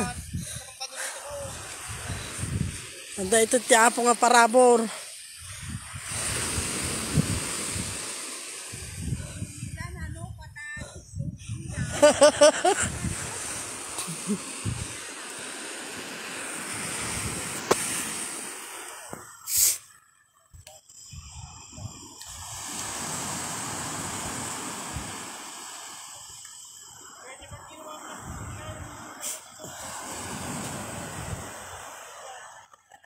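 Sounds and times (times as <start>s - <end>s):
surf breaking on beach: 0.0s - 9.9s, 11.8s - 19.8s, 21.8s - 32.6s
brief sharp hiss: 18.9s - 19.9s.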